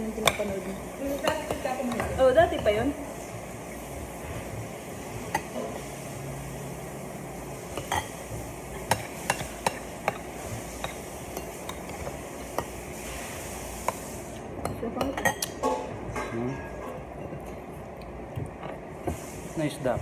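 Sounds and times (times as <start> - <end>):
cutlery clinking on plates: 7.7 - 8.2.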